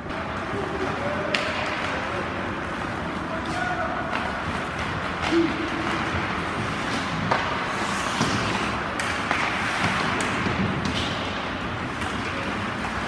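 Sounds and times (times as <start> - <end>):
sticks and puck clacking: 0.0 - 13.0
skates hissing on ice: 6.6 - 8.8.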